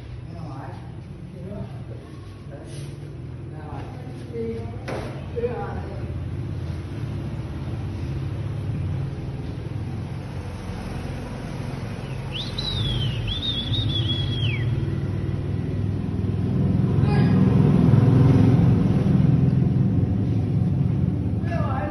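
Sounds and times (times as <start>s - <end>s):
high wavering whistle-like call: 12.0s - 14.9s.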